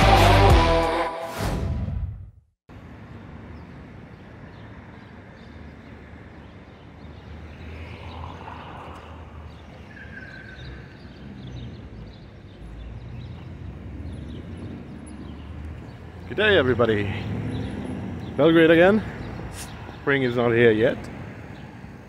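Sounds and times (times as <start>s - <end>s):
rock music: 0.0s - 1.5s
road traffic rumble: 2.7s - 22.0s.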